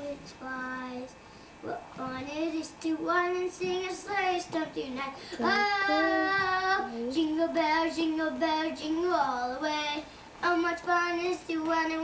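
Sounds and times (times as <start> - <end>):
young children singing: 5.4 - 9.3.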